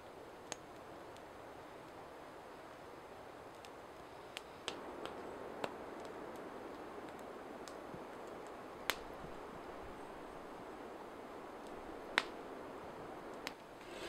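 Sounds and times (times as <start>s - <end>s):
campfire crackling and popping: 0.2s - 14.0s.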